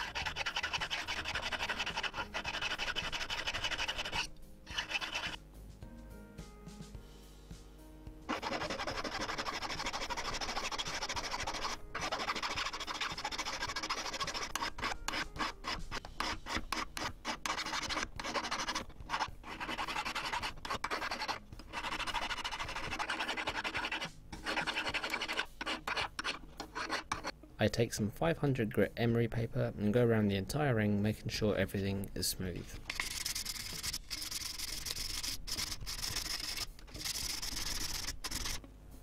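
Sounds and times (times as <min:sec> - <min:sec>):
hand file scraping metal ring: 0:00.0 - 0:05.4, 0:08.3 - 0:27.3, 0:32.9 - 0:38.6.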